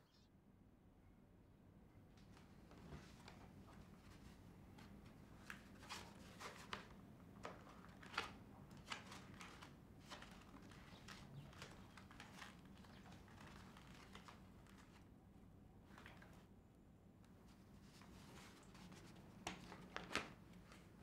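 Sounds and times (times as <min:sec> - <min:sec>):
notebook pages rustling: 0:02.7 - 0:15.1, 0:17.5 - 0:21.0.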